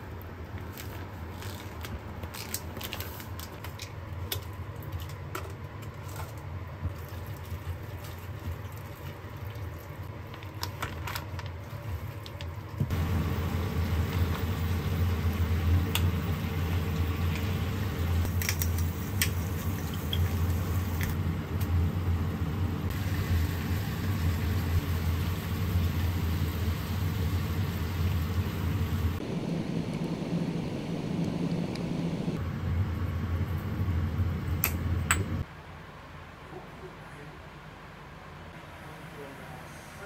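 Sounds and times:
chicken cooking in frying pan: 0:11.5 - 0:29.2
steady low whir: 0:12.9 - 0:35.4.

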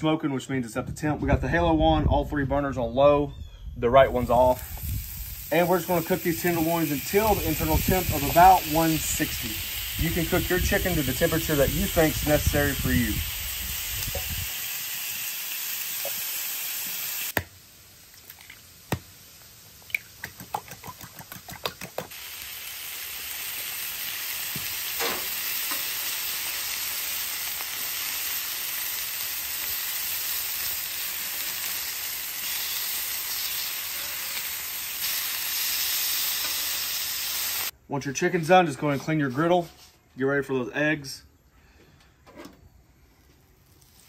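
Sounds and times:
chicken sizzling on a griddle: 0:04.3 - 0:19.8, 0:22.1 - 0:37.8, 0:43.6 - 0:44.0.

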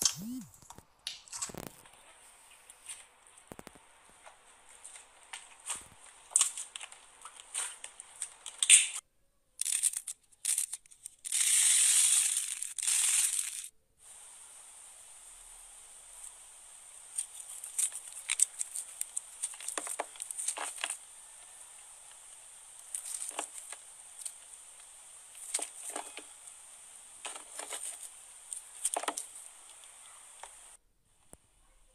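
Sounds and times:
slime crackling and popping: 0:04.8 - 0:09.0, 0:17.0 - 0:30.7.

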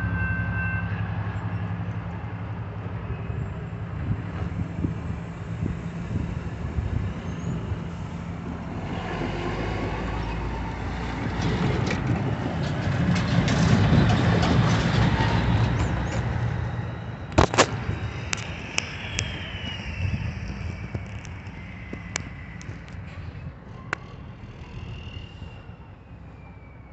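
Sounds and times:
road traffic passing: 0:00.0 - 0:26.9
sharp clicks: 0:17.3 - 0:23.1.

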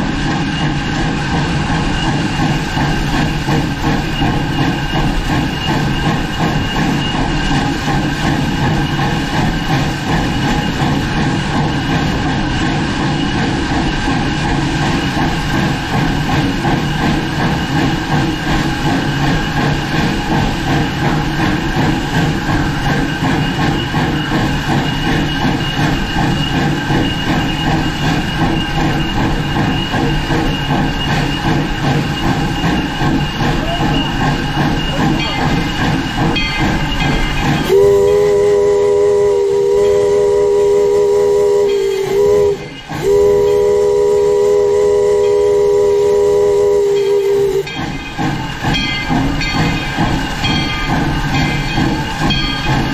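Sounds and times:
steam locomotive running: 0:00.0 - 0:52.9
steam whistle chord: 0:37.6 - 0:47.7.

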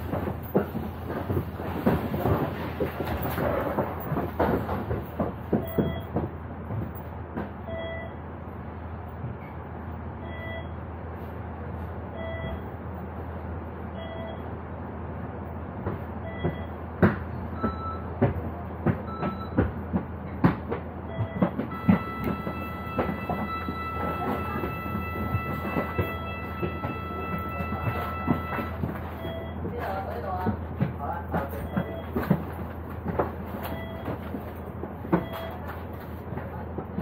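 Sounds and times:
footstep knocks and clicks: 0:00.0 - 0:07.7, 0:15.8 - 0:37.0
bus engine idling: 0:00.0 - 0:37.0
short beeps: 0:07.7 - 0:08.2, 0:10.2 - 0:10.8, 0:12.2 - 0:12.7, 0:14.0 - 0:14.5, 0:17.6 - 0:18.1, 0:21.1 - 0:29.7, 0:31.6 - 0:32.2.

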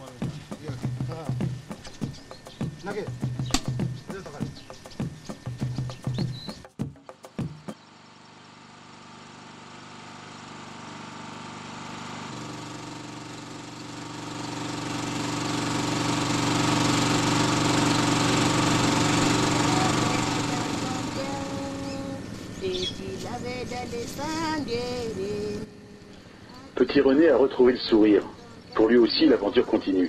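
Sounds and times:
welding arc hissing and crackling: 0:00.0 - 0:05.9
generator engine running: 0:00.0 - 0:30.0.

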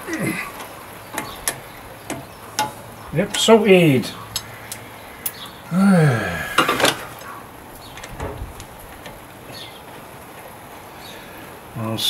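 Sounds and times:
man murmuring: 0:00.0 - 0:00.6, 0:05.7 - 0:06.8.

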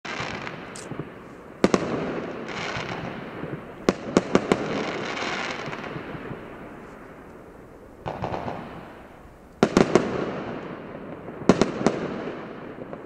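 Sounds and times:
firework shells bursting: 0:00.1 - 0:10.8
fireworks hissing and crackling: 0:00.1 - 0:13.0.

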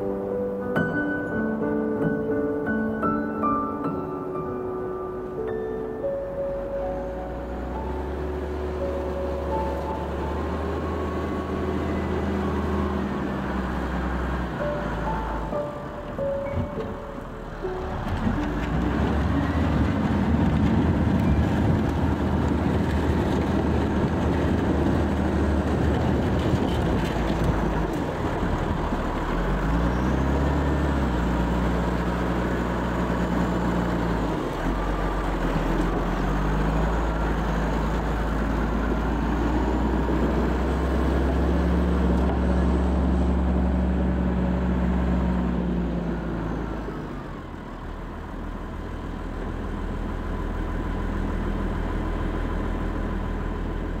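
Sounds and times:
tractor engine running: 0:05.2 - 0:54.0
steady rushing noise: 0:07.4 - 0:29.3.

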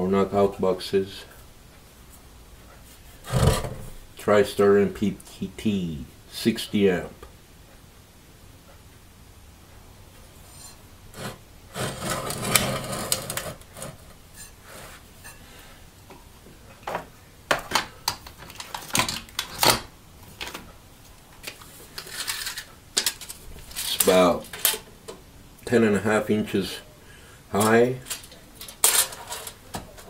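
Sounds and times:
scraping rustling shuffle: 0:10.4 - 0:15.6.

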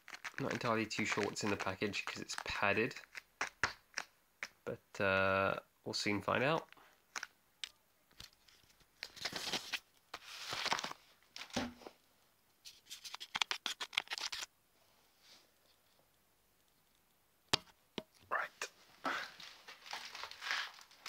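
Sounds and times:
foil mailer rustling and crinkling: 0:08.4 - 0:11.6, 0:19.4 - 0:21.0.

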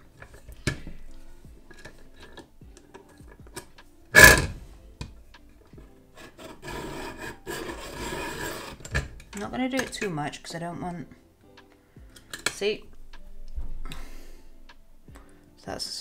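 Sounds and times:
pencil scraping rasp: 0:06.1 - 0:09.1.

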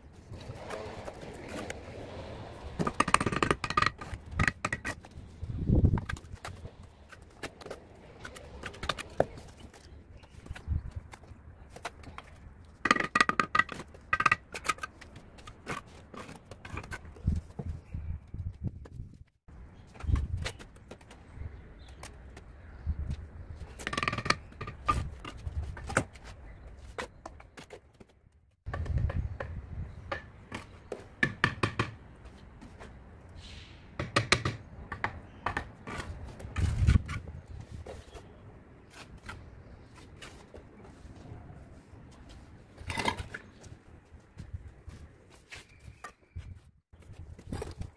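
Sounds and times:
trowel knocking on clay bricks: 0:02.8 - 0:05.0.

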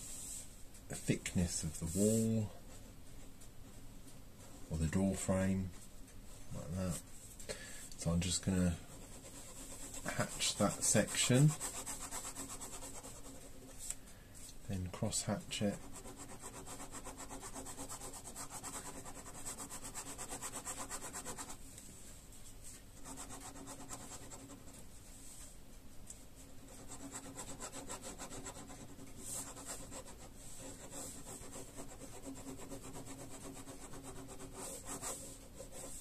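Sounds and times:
pen scratching on paper: 0:09.0 - 0:13.6, 0:15.8 - 0:21.6, 0:23.0 - 0:24.7, 0:26.6 - 0:36.0.

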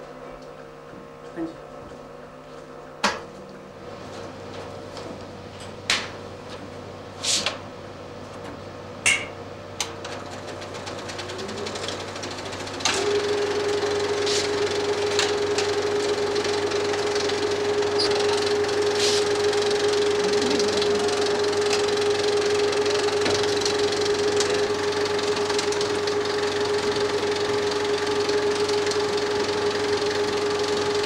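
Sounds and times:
rising whine and steady hum: 0:00.0 - 0:31.0
film projector clattering: 0:09.8 - 0:31.0.

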